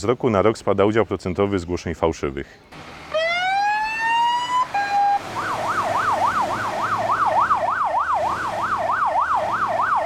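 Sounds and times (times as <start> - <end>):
fire engine siren yelping: 3.1 - 10.0.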